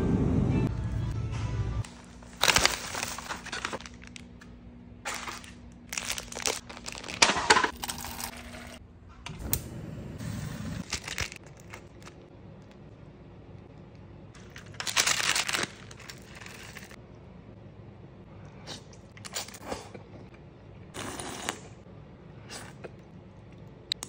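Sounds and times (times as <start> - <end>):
foil packaging crinkling: 1.9 - 8.5, 10.8 - 12.2, 14.4 - 17.0.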